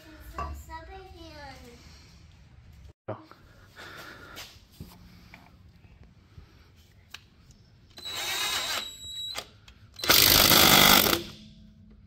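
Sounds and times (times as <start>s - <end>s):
power tool running: 8.0s - 8.9s, 10.0s - 11.4s.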